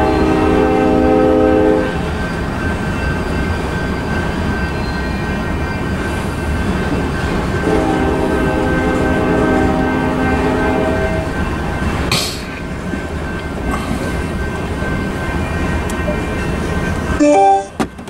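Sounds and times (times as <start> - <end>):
train horn: 0.0 - 2.0, 7.6 - 11.3
train wheels rumbling on rail: 0.0 - 18.0.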